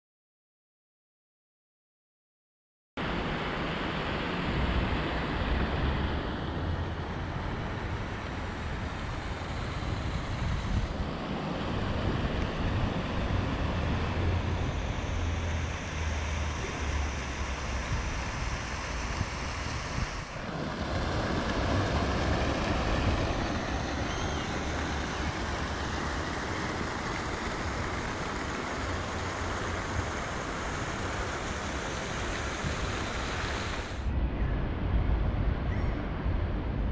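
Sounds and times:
wind rumbling on microphone: 3.0 - 36.9
water washing: 6.9 - 34.0.

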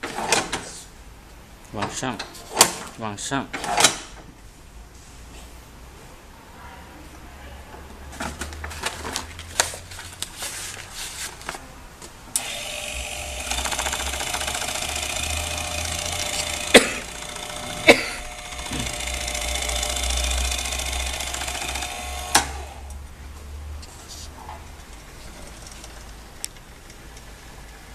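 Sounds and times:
small electric motor running: 12.4 - 22.9.

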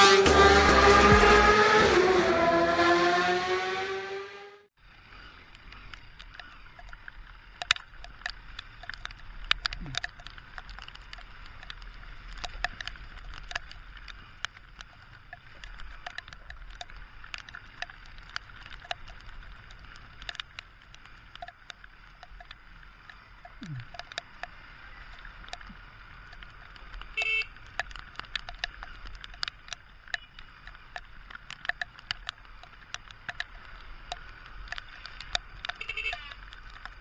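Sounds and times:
raindrops ticking on helmet: 4.9 - 37.0.

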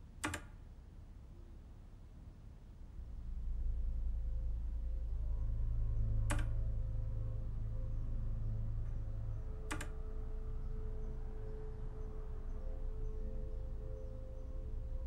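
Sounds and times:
sharp clicks: 0.2 - 0.6, 6.3 - 6.6, 9.7 - 10.0
low drone with held tones: 2.8 - 15.0.

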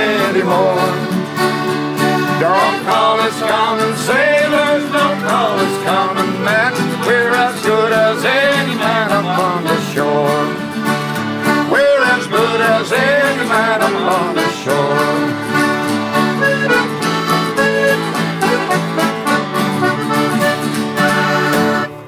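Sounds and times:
people singing: 0.0 - 1.3, 2.2 - 10.8, 11.6 - 15.6
button accordion: 0.0 - 22.0
mandolin: 0.0 - 22.0
strummed acoustic guitars: 0.0 - 22.0.

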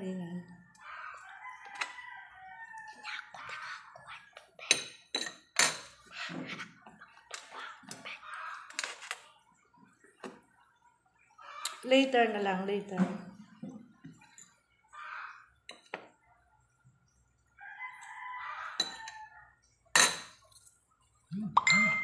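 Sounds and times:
rooster crowing: 0.8 - 3.1, 17.6 - 19.6.

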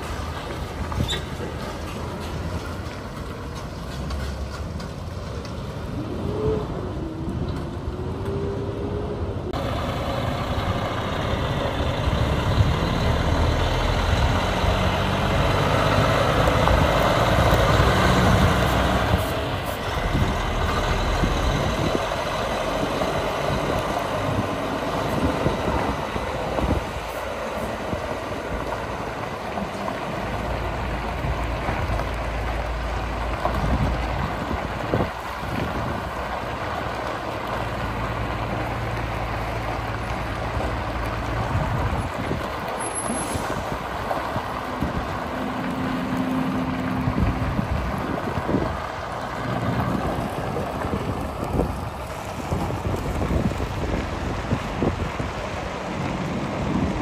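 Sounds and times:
diesel truck engine under load: 0.0 - 57.0
trailer whine: 5.4 - 33.4
tyres crunching on gravel: 12.2 - 57.0.

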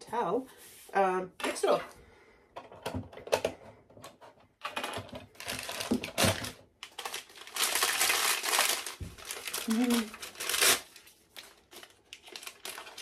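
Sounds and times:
plastic bag crinkling: 4.6 - 13.0.

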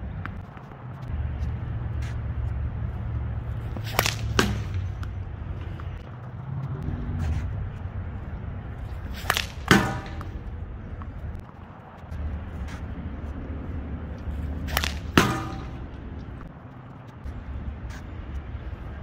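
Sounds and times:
low steady rumble: 0.0 - 19.0
ball striking target: 3.6 - 6.0, 9.0 - 11.4, 14.2 - 16.5.

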